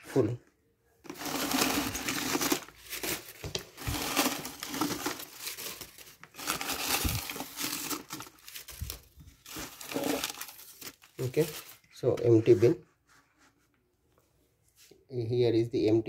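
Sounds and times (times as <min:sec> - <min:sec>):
paper and plastic rustling: 0:01.0 - 0:13.7.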